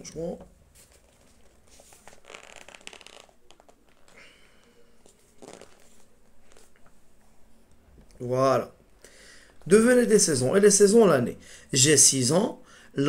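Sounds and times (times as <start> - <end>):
rustling and sliding objects: 0.6 - 8.1.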